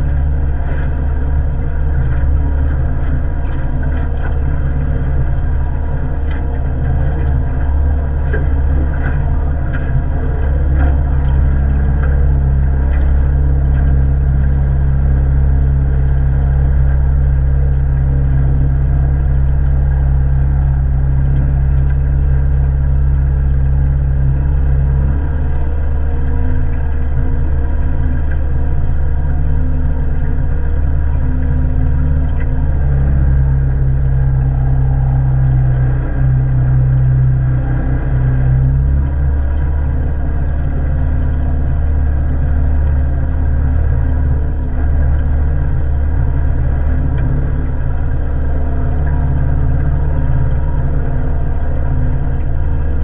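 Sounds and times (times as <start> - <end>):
outboard motor running: 0.0 - 53.0.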